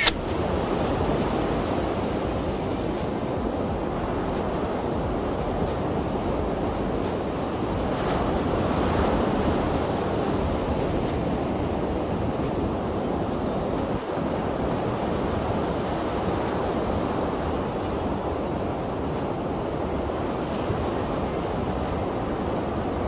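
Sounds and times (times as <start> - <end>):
waves breaking on a beach: 0.0 - 23.0
wind on microphone: 0.0 - 23.0.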